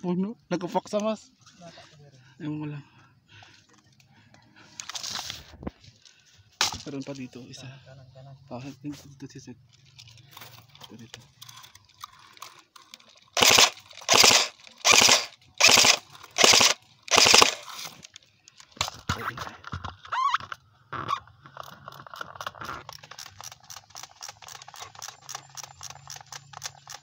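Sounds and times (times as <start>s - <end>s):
airsoft rifle full-auto bursts: 13.4s - 18.0s.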